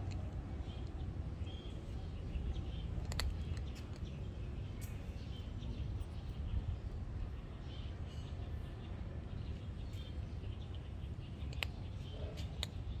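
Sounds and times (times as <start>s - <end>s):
cat crunching dry kibble: 3.0s - 4.1s.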